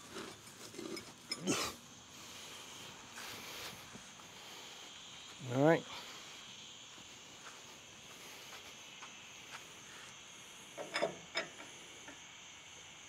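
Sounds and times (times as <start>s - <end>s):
steady high outdoor hiss: 0.0s - 13.0s
metallic clinks and knocks: 0.2s - 1.5s, 10.8s - 11.7s.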